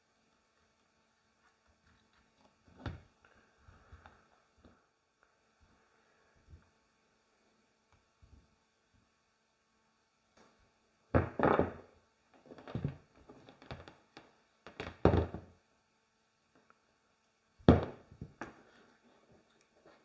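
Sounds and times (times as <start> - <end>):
dull knocks of hard objects: 11.2 - 11.8.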